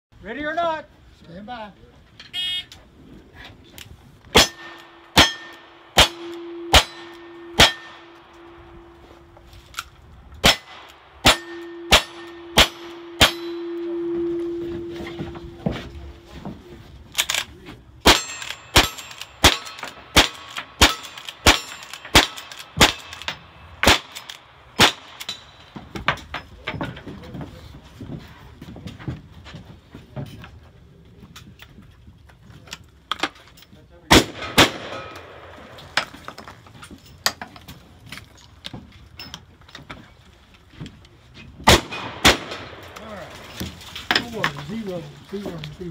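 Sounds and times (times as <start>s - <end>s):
rifle shots: 4.3s - 8.9s, 10.4s - 14.4s, 18.0s - 25.7s, 34.1s - 36.2s, 41.6s - 43.4s
steel target ringing: 4.3s - 9.3s, 10.4s - 15.6s, 18.1s - 24.1s.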